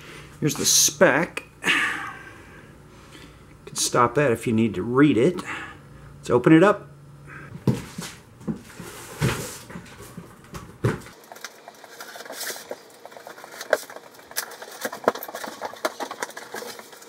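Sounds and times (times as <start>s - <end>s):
box thumping on concrete floor: 7.6s - 9.8s, 10.5s - 11.2s
cardboard crackling and rustling: 7.7s - 17.0s.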